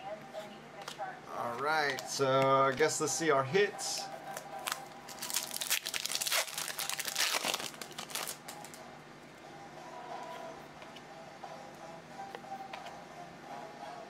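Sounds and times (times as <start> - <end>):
foil wrapper crinkling: 4.3 - 8.8.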